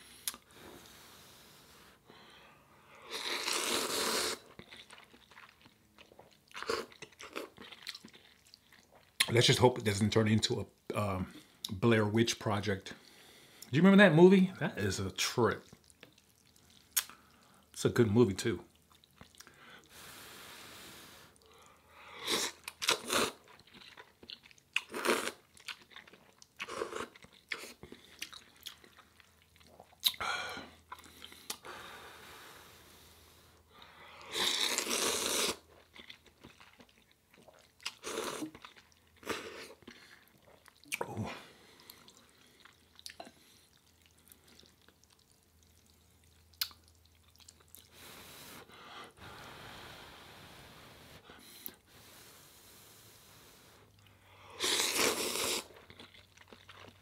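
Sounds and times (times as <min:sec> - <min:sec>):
person chewing: 0:00.1 - 0:00.5, 0:03.0 - 0:09.3, 0:15.6 - 0:17.7, 0:18.7 - 0:20.0, 0:21.3 - 0:31.7, 0:33.6 - 0:50.0, 0:53.4 - 0:57.0
person slurping noodles: 0:03.0 - 0:04.5, 0:22.2 - 0:23.4, 0:34.2 - 0:35.6, 0:47.9 - 0:53.8, 0:54.5 - 0:55.8.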